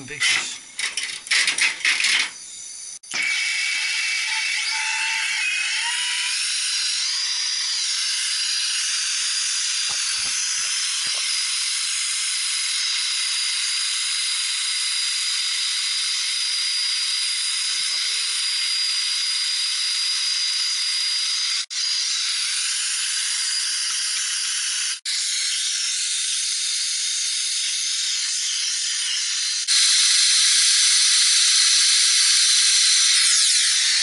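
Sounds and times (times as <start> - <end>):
torch flame hissing: 6.6 - 11.8.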